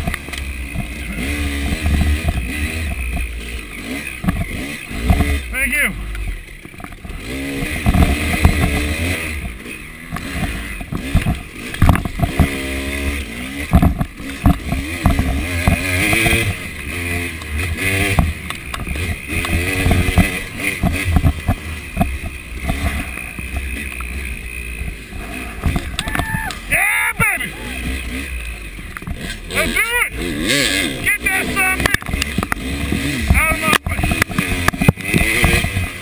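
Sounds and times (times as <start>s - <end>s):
dirt bike engine revving: 0.0s - 36.0s
sharp knocks from bumps: 13.6s - 16.6s, 17.8s - 23.7s, 31.8s - 36.0s.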